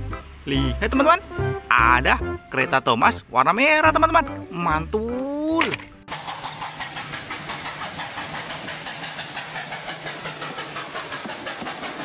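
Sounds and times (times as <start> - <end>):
steam locomotive chuffing: 6.1 - 12.0.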